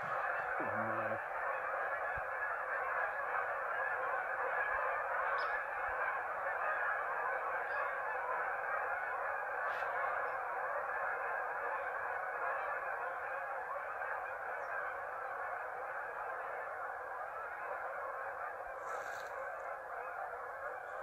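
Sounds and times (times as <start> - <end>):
geese honking: 0.0 - 21.0.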